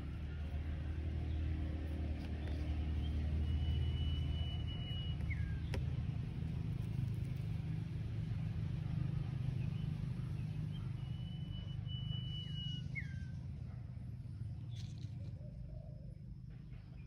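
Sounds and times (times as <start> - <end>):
bird whistling: 3.0 - 5.7, 10.7 - 13.4.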